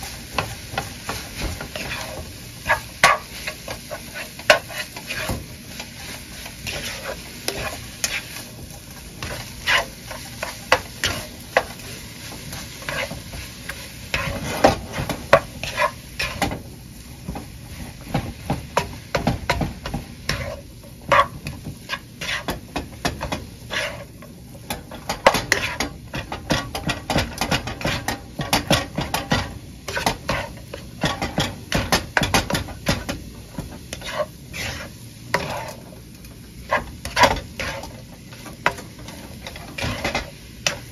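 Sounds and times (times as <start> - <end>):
spatula scraping a skillet: 0.0 - 16.6, 17.3 - 40.9
fried rice sizzling: 0.0 - 40.9.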